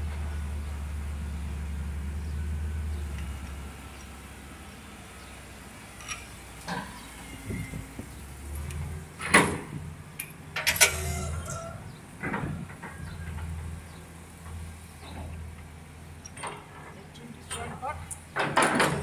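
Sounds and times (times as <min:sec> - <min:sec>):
metallic clanks and knocks: 0:09.2 - 0:15.4, 0:16.2 - 0:19.0.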